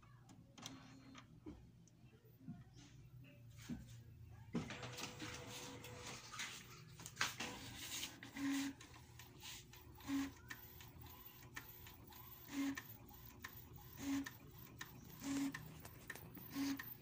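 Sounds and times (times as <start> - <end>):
printer carriage whirring: 4.5 - 17.0.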